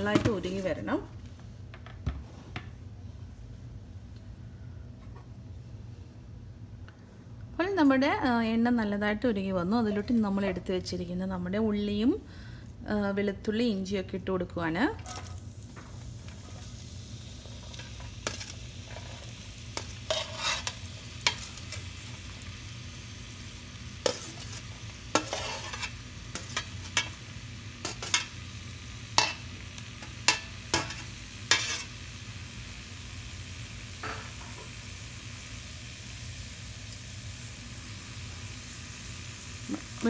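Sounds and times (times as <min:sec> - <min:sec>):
onions sizzling in hot oil: 0:00.0 - 0:01.1, 0:14.6 - 0:40.0.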